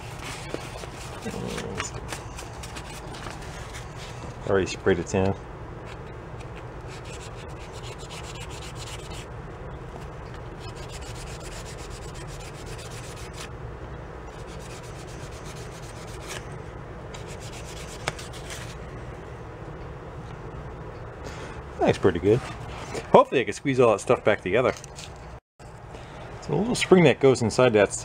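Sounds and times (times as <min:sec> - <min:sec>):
scrubbing and rubbing: 0:00.0 - 0:04.2, 0:06.9 - 0:09.2, 0:10.6 - 0:13.5, 0:14.3 - 0:16.4, 0:17.2 - 0:18.8.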